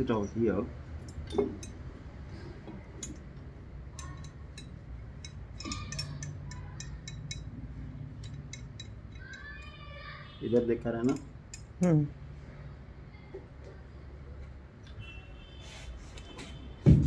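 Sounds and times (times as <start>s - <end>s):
steady low hum: 0.0s - 10.5s
metallic clicks and clinks: 1.0s - 2.0s, 2.6s - 9.8s, 11.0s - 11.8s.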